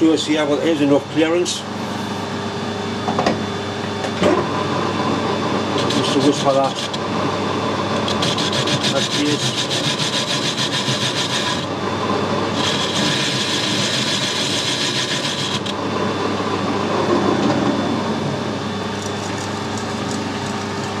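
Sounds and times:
lathe motor and gearing running: 0.0 - 21.0
lathe tool cutting with rasping hiss: 7.9 - 11.7, 12.5 - 15.8.

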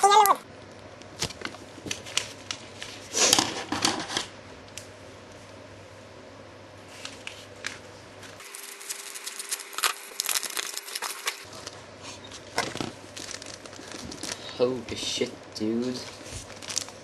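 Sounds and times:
packaging rustling and crinkling: 1.2 - 4.2, 7.0 - 14.8, 15.8 - 17.0.

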